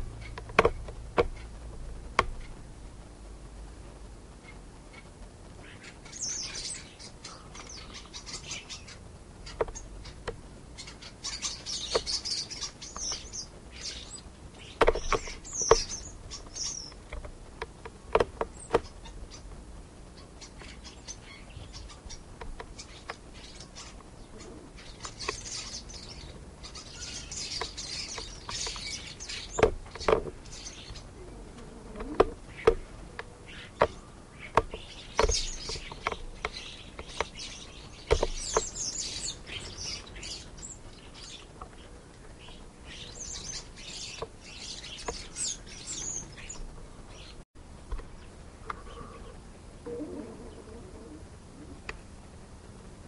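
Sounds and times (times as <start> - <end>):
sharp knocks and taps: 0.3 - 1.4
starlings chirping and whistling: 5.6 - 17.1, 18.5 - 19.5, 20.1 - 32.8, 33.4 - 47.4.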